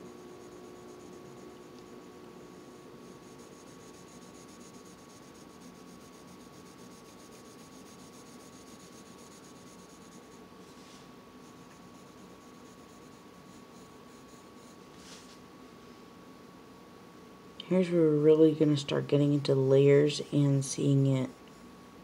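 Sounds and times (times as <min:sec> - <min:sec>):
pencil scratching on paper: 0:00.0 - 0:02.0, 0:03.0 - 0:10.4, 0:11.4 - 0:14.8.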